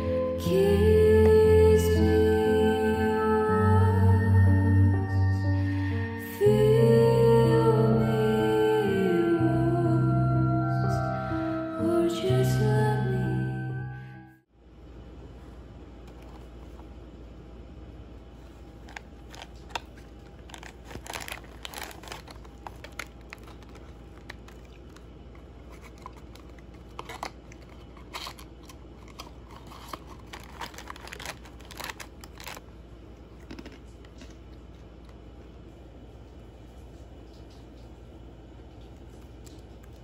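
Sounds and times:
faint low hum: 0:00.0 - 0:40.0
plastic bag crinkling: 0:18.4 - 0:32.7, 0:33.3 - 0:34.6
cardboard box rustling: 0:18.8 - 0:24.7, 0:25.6 - 0:32.6.

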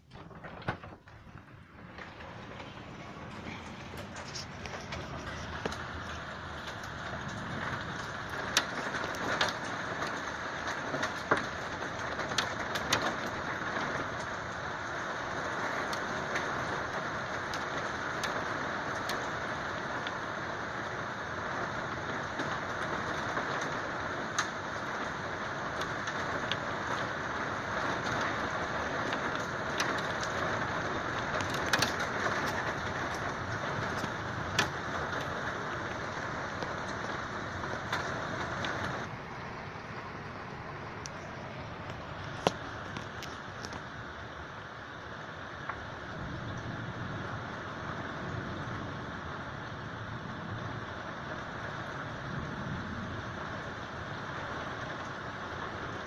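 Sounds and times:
raindrops tapping hard surface: 0:00.0 - 0:44.3
steady rain hiss: 0:00.0 - 0:56.0.

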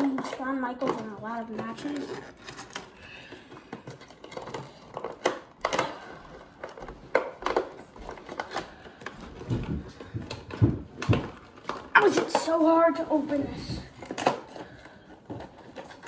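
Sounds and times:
packaging crinkling and scraping: 0:00.0 - 0:16.0.

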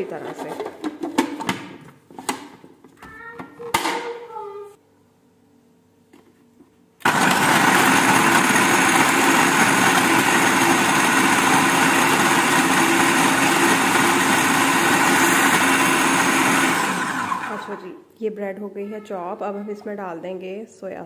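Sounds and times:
food processor chopping: 0:07.0 - 0:17.8.

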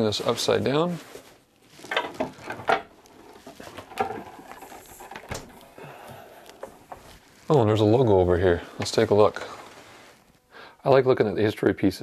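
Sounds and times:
wood creaking: 0:01.7 - 0:07.7.

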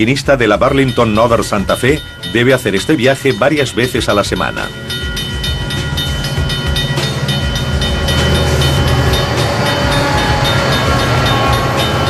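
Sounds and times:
diesel locomotive engines rumbling: 0:00.0 - 0:12.0
steady high-pitched tones: 0:00.0 - 0:12.0
train wheels clicking on rails: 0:00.9 - 0:12.0.

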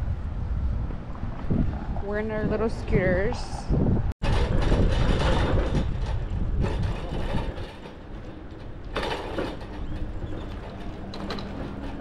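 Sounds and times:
frame and basket rattling: 0:04.2 - 0:12.0
scooter rolling over asphalt: 0:04.2 - 0:12.0.

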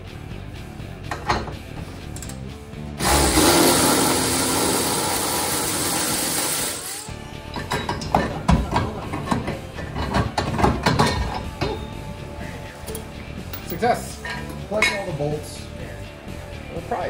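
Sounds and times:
clicks and knocks of tools: 0:01.1 - 0:02.4, 0:07.6 - 0:11.8.

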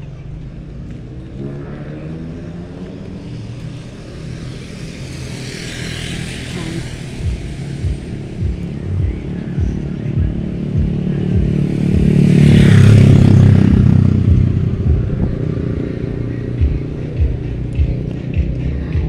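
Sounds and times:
vehicle engine running: 0:00.0 - 0:19.0
vehicle passing by: 0:00.0 - 0:19.0
low thumps: 0:07.2 - 0:15.7.

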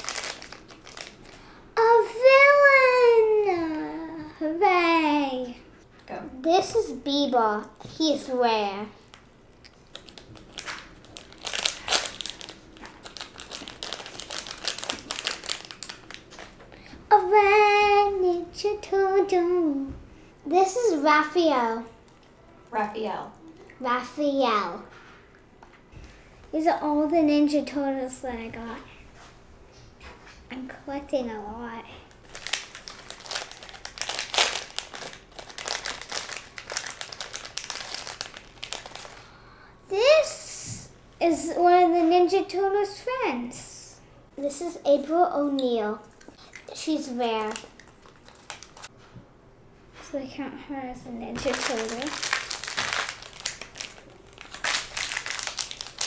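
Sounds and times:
foil packet crinkling: 0:00.0 - 0:01.6, 0:09.0 - 0:16.8, 0:32.1 - 0:39.3, 0:46.2 - 0:48.9, 0:51.4 - 0:56.0.

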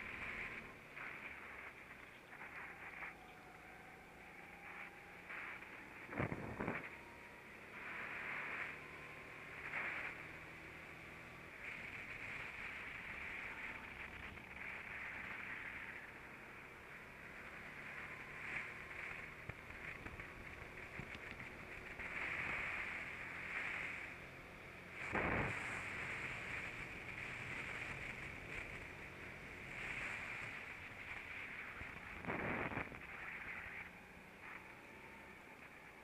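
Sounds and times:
wind noise: 0:00.0 - 0:16.3, 0:24.9 - 0:34.7
muffled kart engine: 0:00.0 - 0:36.0.

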